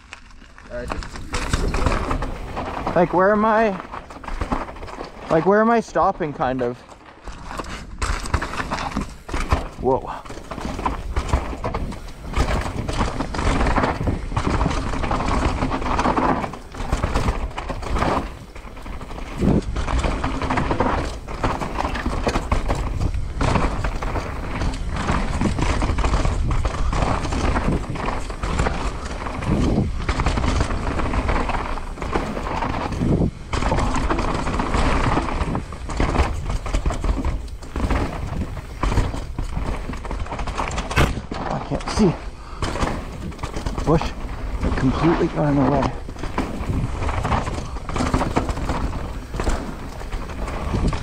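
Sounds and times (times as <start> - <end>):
mountain bike clattering: 0.0 - 51.0
sharp knocks from roots and rocks: 0.0 - 51.0
wind buffeting microphone: 10.5 - 51.0.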